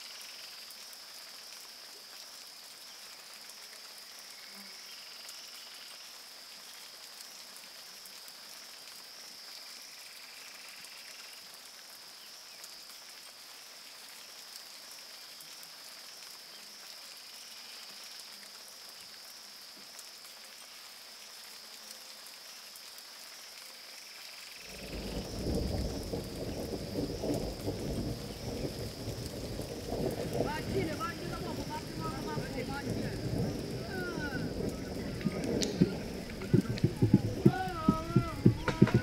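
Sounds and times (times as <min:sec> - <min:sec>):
faint hiss: 0:00.0 - 0:39.0
loud fluctuating low rumble: 0:34.5 - 0:39.0.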